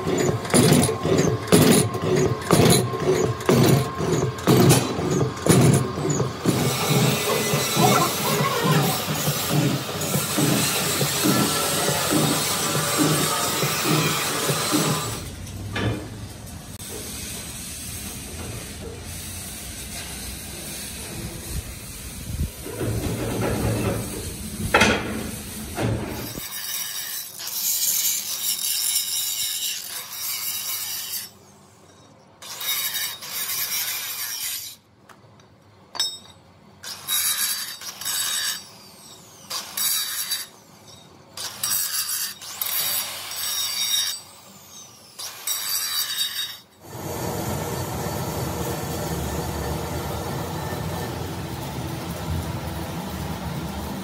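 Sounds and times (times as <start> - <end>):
angle grinder grinding steel: 0.0 - 15.4, 26.2 - 34.8, 36.8 - 53.6.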